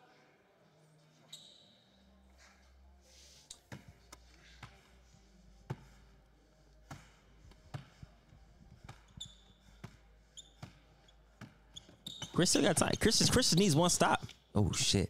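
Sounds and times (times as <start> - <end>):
sneaker squeaks: 1.1 - 2.6, 8.8 - 13.6.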